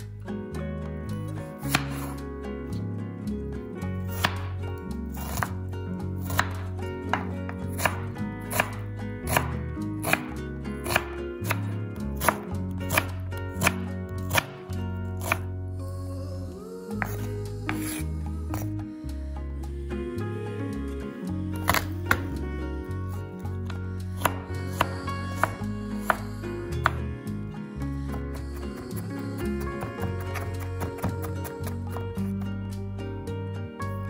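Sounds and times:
background music with bass: 0.0 - 34.0
knife chopping on cutting board: 1.6 - 2.1, 5.2 - 5.6, 6.2 - 14.6, 24.2 - 26.2.

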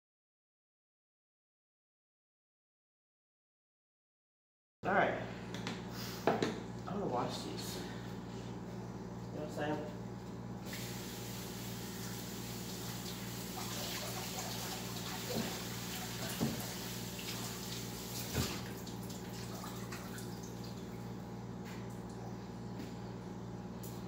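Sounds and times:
tap running into sink: 13.6 - 17.5, 18.2 - 18.8.

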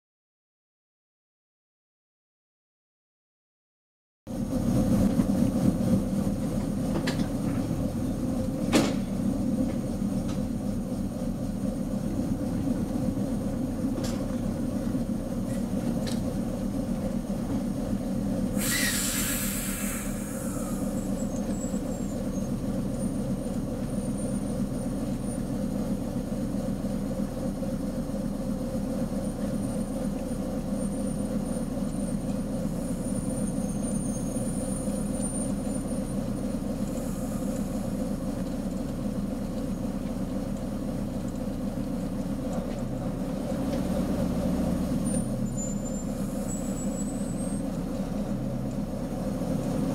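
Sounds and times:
diesel locomotive engine running: 4.3 - 49.9
short hiss: 18.6 - 21.0.

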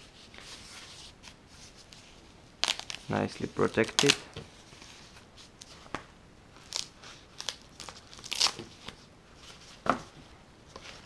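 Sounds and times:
plastic wrap crinkling: 2.6 - 9.0.

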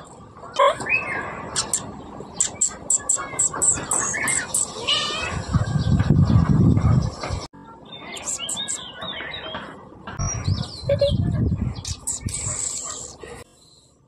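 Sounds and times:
birds chirping: 0.0 - 14.0
low rumble on microphone: 5.2 - 7.5, 10.0 - 13.4.

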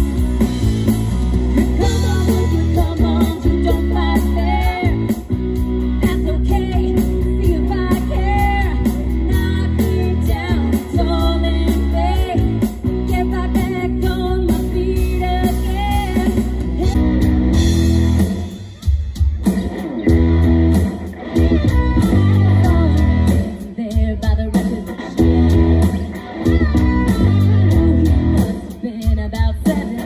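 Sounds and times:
electric guitars: 0.0 - 30.0
rock band playing: 0.0 - 30.0
woman singing: 1.6 - 5.3, 6.0 - 17.0, 21.5 - 30.0.

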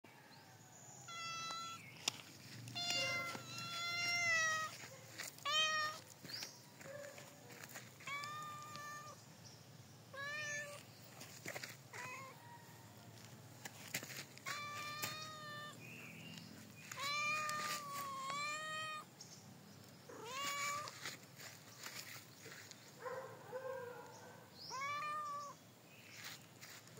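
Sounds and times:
cat meowing: 1.0 - 1.8, 2.7 - 4.8, 5.4 - 6.1, 8.0 - 9.2, 10.1 - 10.8, 11.9 - 12.4, 14.4 - 15.8, 16.9 - 19.1, 20.1 - 21.0, 24.7 - 25.6.

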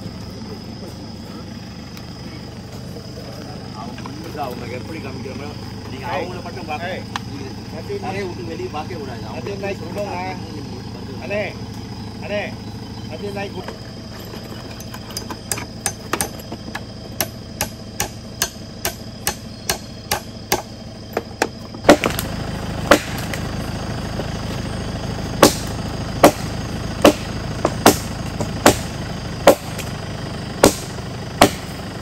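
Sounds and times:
vehicle engine idling: 0.0 - 32.0
hand tool striking a log: 13.7 - 22.3, 22.9 - 23.4, 25.4 - 30.0, 30.6 - 31.9.

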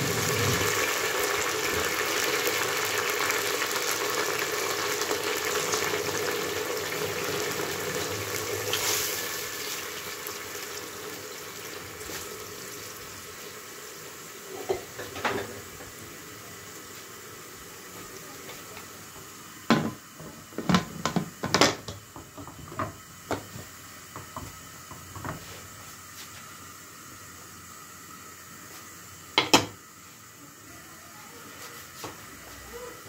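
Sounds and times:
faint hiss: 5.0 - 19.7.

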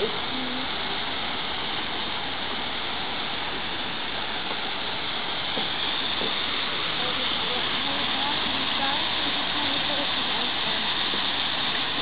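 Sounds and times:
waterfall rushing into a pond: 0.0 - 12.0.

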